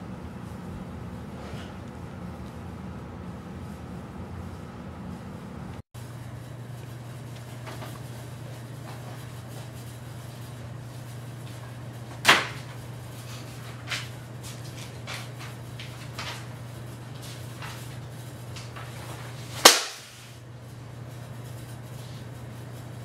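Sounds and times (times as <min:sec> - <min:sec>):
book smacking down: 0:19.6 - 0:20.2.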